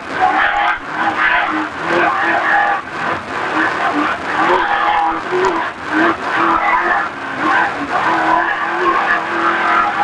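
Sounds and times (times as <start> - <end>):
road and wind noise: 0.0 - 10.0
truck engine revving hard: 0.0 - 10.0.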